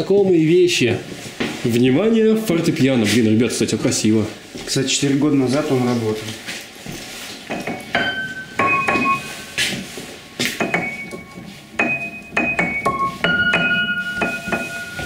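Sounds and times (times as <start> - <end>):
piano notes and chords: 7.8 - 15.0.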